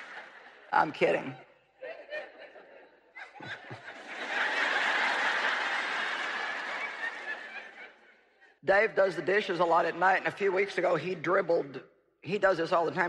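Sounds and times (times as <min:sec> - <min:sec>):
audience laughing: 0:00.0 - 0:08.6.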